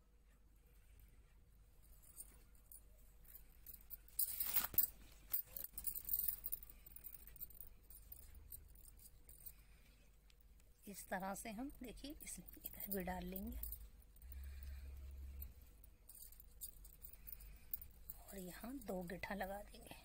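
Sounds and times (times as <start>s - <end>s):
glass bangles clinking: 2.0s - 9.7s, 11.9s - 19.9s
crochet hook and bead clinking: 11.5s - 20.0s.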